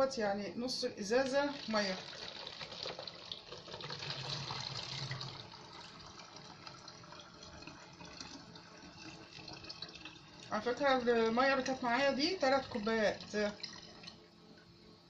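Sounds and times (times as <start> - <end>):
water pouring into plastic bottle: 1.5 - 10.5.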